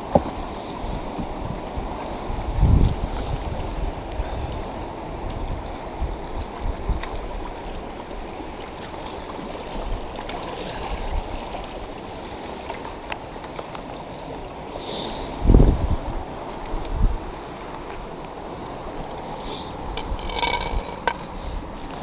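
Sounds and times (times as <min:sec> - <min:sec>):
wind rumbling on microphone: 0:00.0 - 0:08.5, 0:15.3 - 0:22.0
river current rushing: 0:07.8 - 0:22.0.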